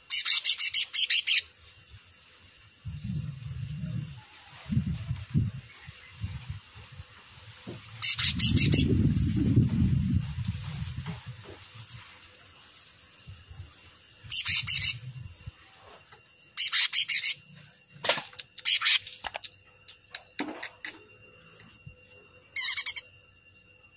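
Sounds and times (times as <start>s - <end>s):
bird singing rapid chattering phrases: 0.1s - 1.5s, 8.0s - 9.0s, 14.3s - 15.0s, 16.6s - 17.4s, 18.6s - 19.1s, 22.6s - 23.1s
faint high-pitched tone: 13.2s - 16.6s, 20.9s - 23.9s.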